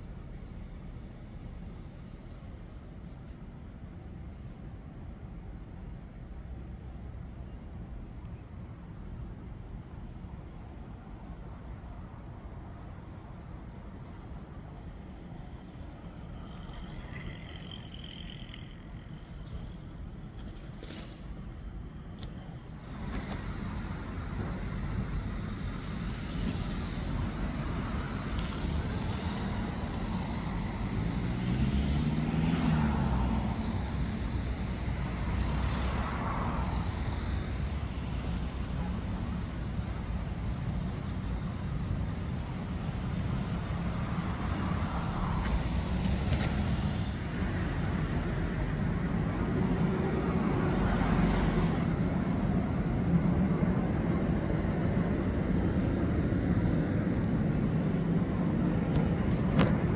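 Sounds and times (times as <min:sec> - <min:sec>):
cars passing: 0:12.6 - 0:59.9.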